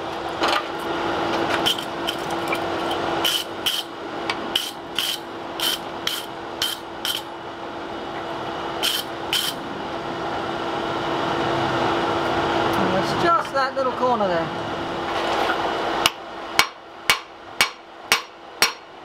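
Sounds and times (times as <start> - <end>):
steady hum: 0.0 - 19.0
hammer striking metal on anvil: 16.6 - 18.9.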